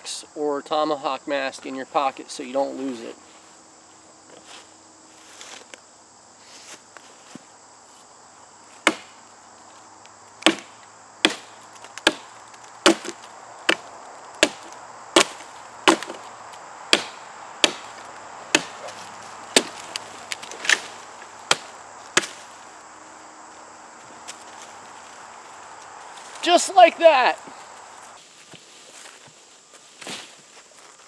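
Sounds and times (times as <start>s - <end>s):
axe chopping sapling: 8.8s - 9.2s, 10.4s - 22.5s.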